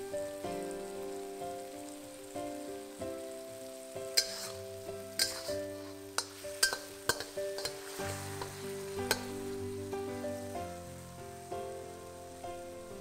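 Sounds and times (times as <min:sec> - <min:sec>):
background music with held notes: 0:00.0 - 0:13.0
food sizzling in oil: 0:00.0 - 0:13.0
metal spatula scraping a wok: 0:04.1 - 0:09.6.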